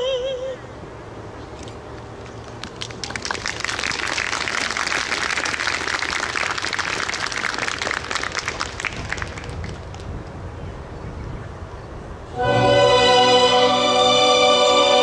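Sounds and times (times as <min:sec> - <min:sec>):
audience applauding: 0:02.8 - 0:10.1.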